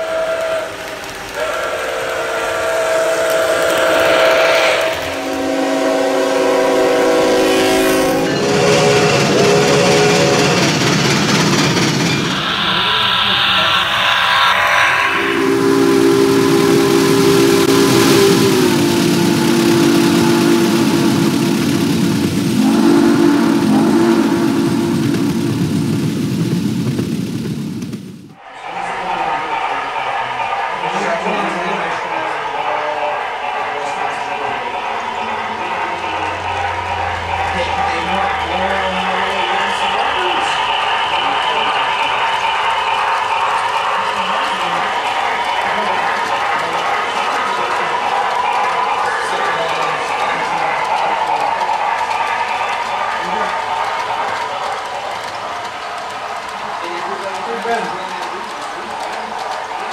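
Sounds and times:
steam locomotive whistle: 0.0 - 25.9
moving train rumble and hiss: 0.0 - 59.9.

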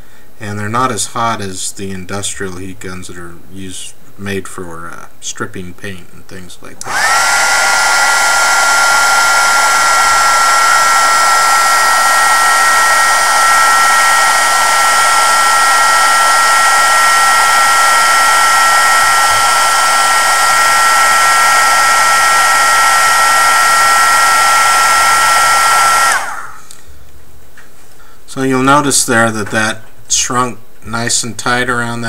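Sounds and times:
heat gun blowing air: 6.8 - 26.8.

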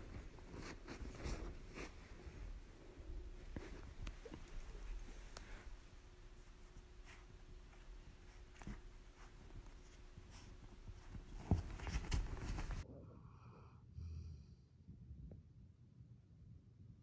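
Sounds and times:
scratchy rustling and clicks: 3.4 - 12.8.

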